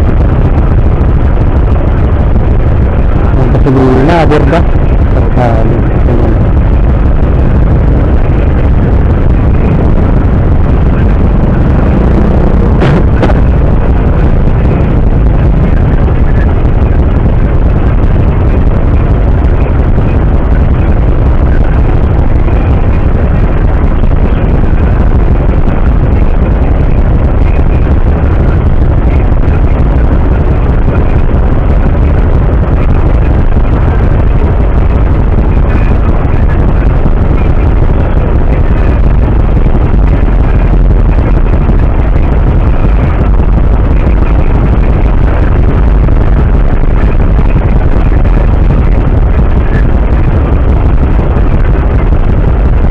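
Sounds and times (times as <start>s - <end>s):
vehicle engines idling: 0.4s - 25.1s.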